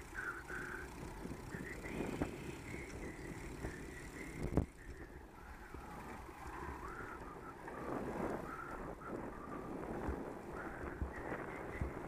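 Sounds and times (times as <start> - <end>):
bicycle rolling on tarmac: 0.0 - 12.0
faint wavering whistle tones: 1.5 - 9.8.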